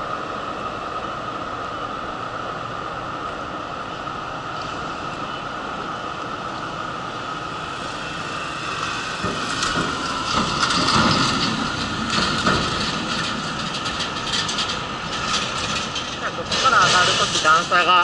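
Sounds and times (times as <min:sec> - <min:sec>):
truck driving past: 0:03.9 - 0:17.4
wheelchair wheels rolling on asphalt: 0:04.3 - 0:18.0.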